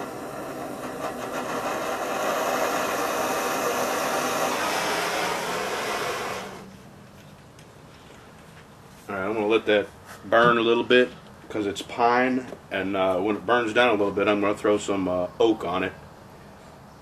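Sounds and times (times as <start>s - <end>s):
gas torch hissing: 0.0s - 6.7s.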